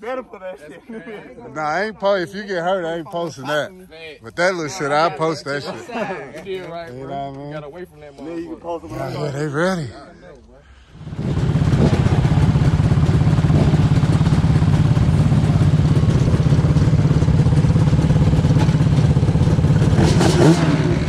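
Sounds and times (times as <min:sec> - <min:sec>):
two-stroke engine idling: 0:10.9 - 0:21.0.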